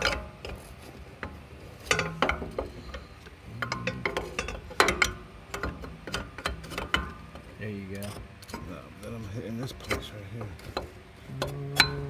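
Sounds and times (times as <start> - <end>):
metal parts clinking and knocking: 0.0 - 7.4.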